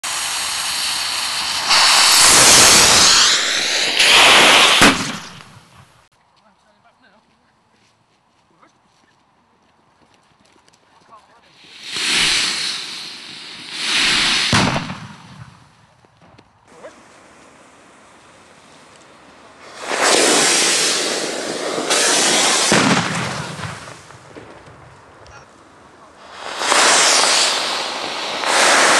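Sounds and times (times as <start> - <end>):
firework tubes rushing hiss: 0.0 - 5.7, 11.5 - 15.8, 16.7 - 28.9.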